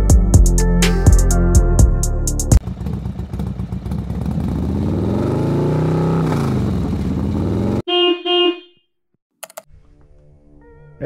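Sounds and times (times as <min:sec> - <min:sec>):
engine revving: 0:02.6 - 0:07.9
short horn toots: 0:07.9 - 0:08.8
click: 0:09.4 - 0:09.7.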